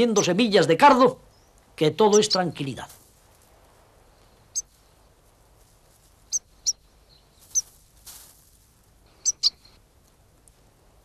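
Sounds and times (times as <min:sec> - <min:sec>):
bird high chirps: 0:06.3 - 0:07.7, 0:09.2 - 0:09.8.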